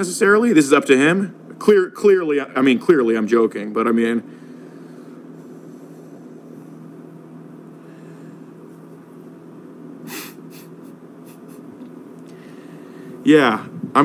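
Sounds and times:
low hum: 0.0 - 14.0
short hiss: 10.1 - 11.6.

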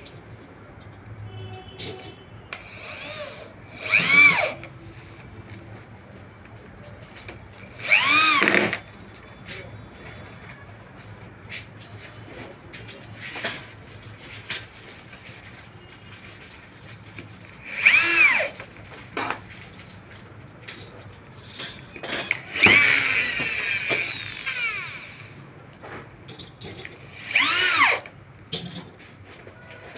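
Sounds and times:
electric drill drilling into wood: 2.6 - 4.6, 7.8 - 8.8, 17.6 - 18.6, 22.4 - 25.4, 27.1 - 28.1.

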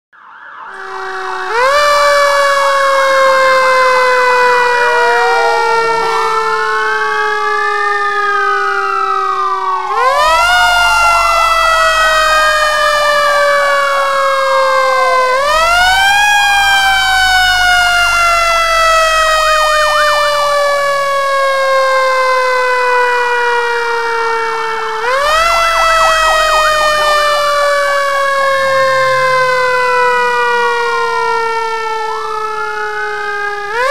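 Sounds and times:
fire truck siren wailing: 0.1 - 33.9
second siren tone swooping: 3.8 - 7.1, 25.0 - 31.6
low rumble: 25.6 - 30.9.

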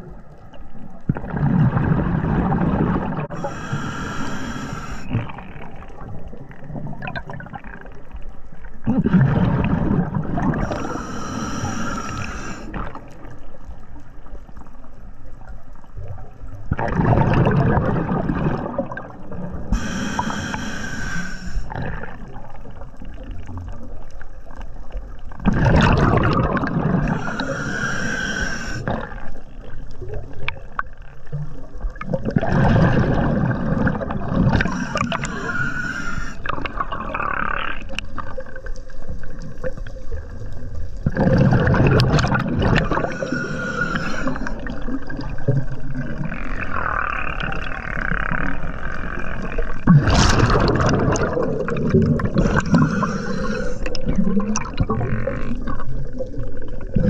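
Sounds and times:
exhaled bubbles gurgling: 0.0 - 57.0
regulator inhale hiss: 3.3 - 5.2, 10.6 - 12.8, 19.7 - 21.8, 27.0 - 28.9, 34.6 - 36.7, 42.8 - 44.7, 52.4 - 54.0.

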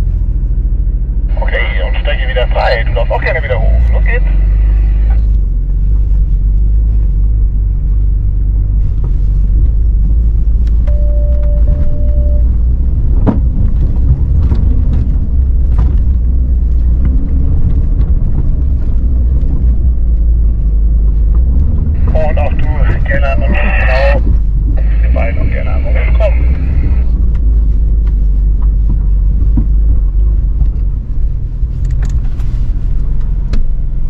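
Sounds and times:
car engine rumbling: 0.0 - 34.0
short steady beep: 10.9 - 12.5
knocks and clicks from rough ground: 13.1 - 19.9.

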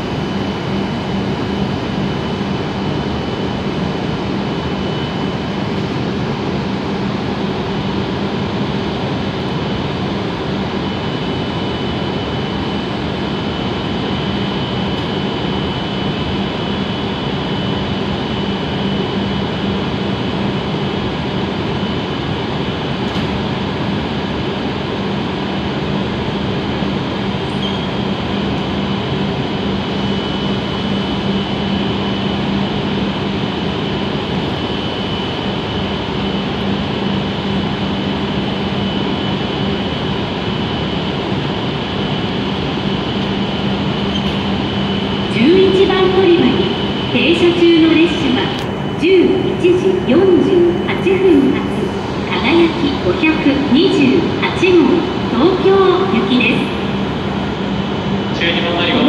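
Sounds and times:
high steady whine: 0.0 - 59.0
train equipment humming: 58.2 - 59.0.

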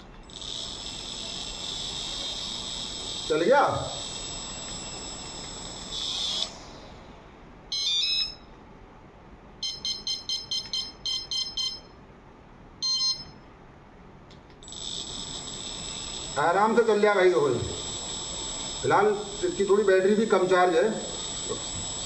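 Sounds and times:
electric motor whining: 0.3 - 6.7, 14.6 - 22.0
electronic beeps: 14.6 - 22.0.

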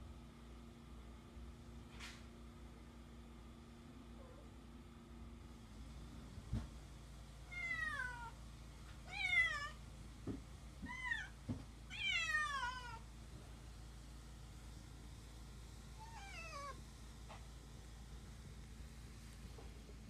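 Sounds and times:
cat meowing: 7.5 - 8.4, 9.0 - 9.8, 10.8 - 13.0, 16.0 - 16.8.

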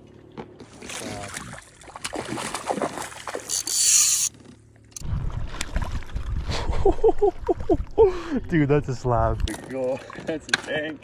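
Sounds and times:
fish splashing at water surface: 0.7 - 4.3
fishing reel winding: 3.4 - 4.3.

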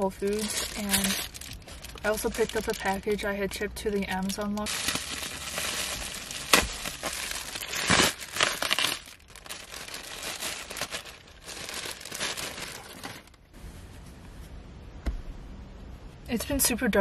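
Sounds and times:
plastic crinkling and rustling: 0.0 - 13.5.

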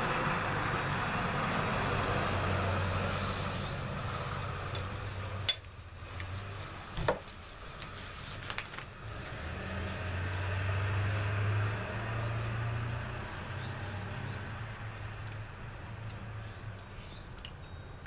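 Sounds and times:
cling wrap crinkling: 3.1 - 10.6.

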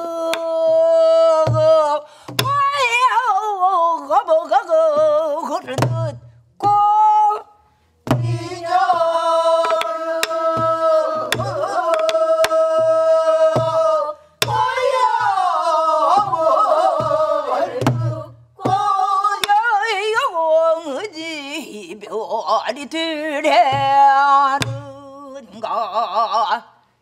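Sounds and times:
woman singing long wavering notes: 0.0 - 2.0, 8.3 - 22.4, 23.5 - 26.6
group singing: 8.1 - 20.8
stick clicking on drum: 9.6 - 12.7, 19.4 - 19.6.

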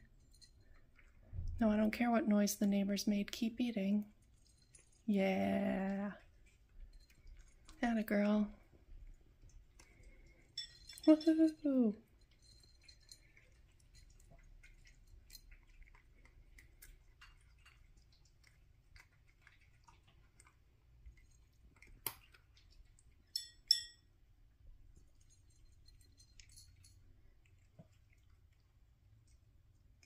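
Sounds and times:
cat chewing dry kibble: 0.0 - 1.6, 4.0 - 5.1, 5.8 - 11.1, 12.0 - 30.0
sharp ringing clinks: 23.4 - 24.0.

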